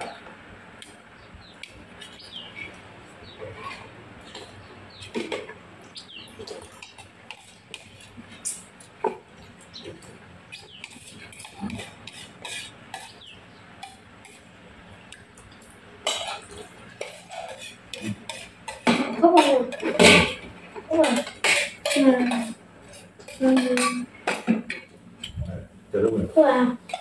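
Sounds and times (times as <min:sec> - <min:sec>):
spoons clinking on ceramic bowls: 0:16.0 - 0:20.3, 0:20.9 - 0:24.6.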